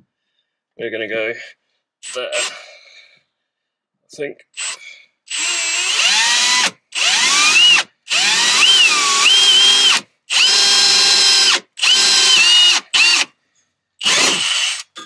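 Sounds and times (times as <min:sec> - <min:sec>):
power drill whining: 0:02.0 - 0:02.6, 0:04.6 - 0:13.3, 0:14.0 - 0:15.0.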